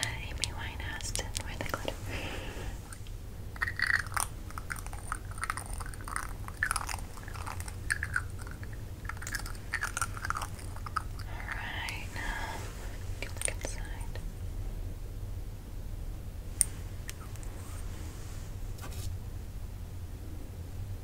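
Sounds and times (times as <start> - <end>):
soft clicks and crackles: 0.0 - 2.0, 2.8 - 14.2, 16.6 - 18.0
faint low hum: 0.0 - 21.0.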